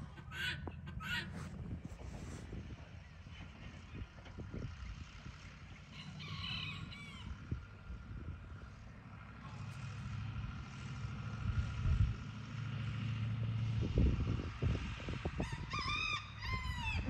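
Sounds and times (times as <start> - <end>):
distant engine humming: 0.0 - 17.0
low rumbles: 0.0 - 17.0
rooster crowing: 5.9 - 7.6, 15.4 - 17.0.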